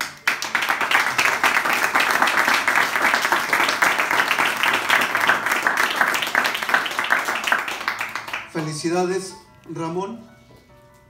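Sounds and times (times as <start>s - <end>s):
crowd applauding: 0.0s - 8.9s.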